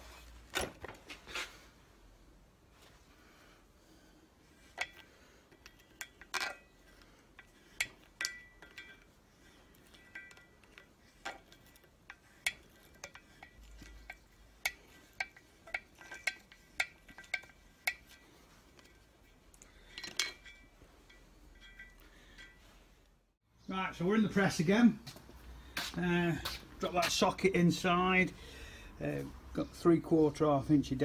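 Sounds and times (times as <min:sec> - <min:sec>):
metal tools clinking: 0:04.6 - 0:22.8.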